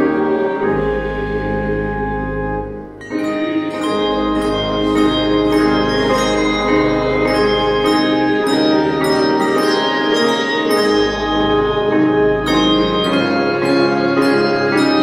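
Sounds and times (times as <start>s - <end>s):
handbell choir ringing: 3.0s - 15.0s.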